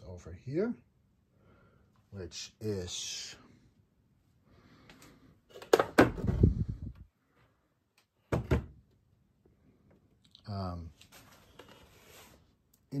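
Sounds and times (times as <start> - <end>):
sharp knocks from handling things: 8.3 - 8.8.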